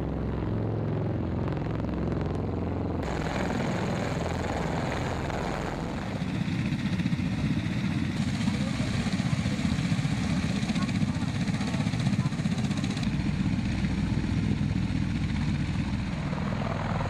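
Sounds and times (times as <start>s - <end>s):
aircraft rotors droning: 0.0s - 17.0s
rotors beating: 0.0s - 17.0s
rushing noise: 3.0s - 6.4s.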